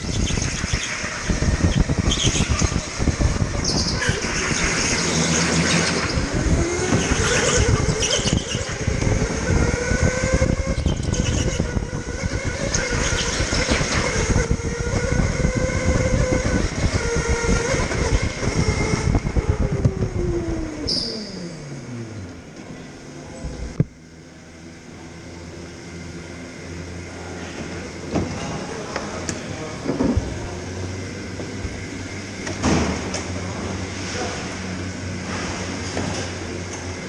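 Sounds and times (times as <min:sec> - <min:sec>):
tyre squeals: 0:00.0 - 0:02.9, 0:03.5 - 0:14.3
chassis and tyres rattling: 0:00.0 - 0:22.6
electric kart motor whining: 0:00.0 - 0:37.0.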